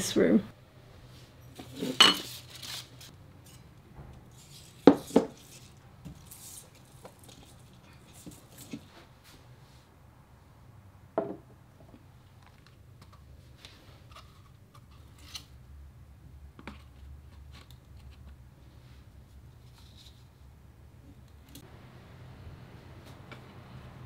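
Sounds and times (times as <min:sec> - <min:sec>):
dried stems rustling: 0:01.6 - 0:03.2.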